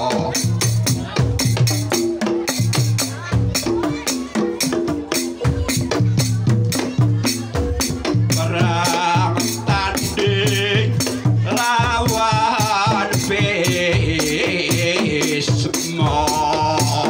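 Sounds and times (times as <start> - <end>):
woman singing through a pa: 8.4 - 17.0.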